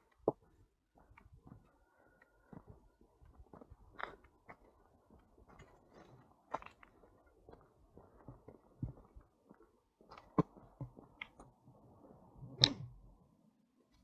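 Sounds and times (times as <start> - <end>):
footsteps crunching on footpath: 0.0 - 11.2.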